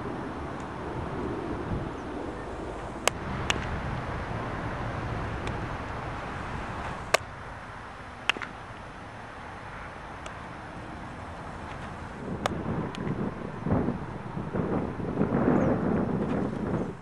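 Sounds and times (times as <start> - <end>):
steady outdoor hiss: 0.0 - 17.0
baseball bat cracks: 3.0 - 3.8, 6.8 - 7.3, 8.2 - 8.9.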